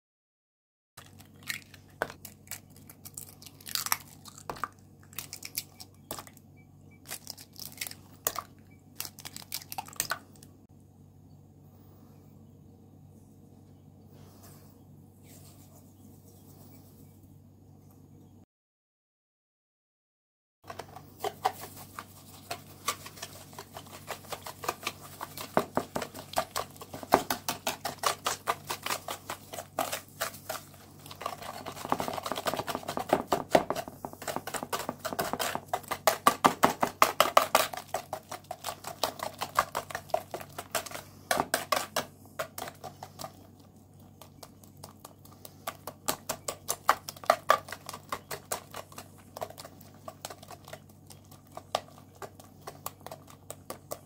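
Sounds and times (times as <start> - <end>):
whisk clicking against bowl: 21.4 - 43.3.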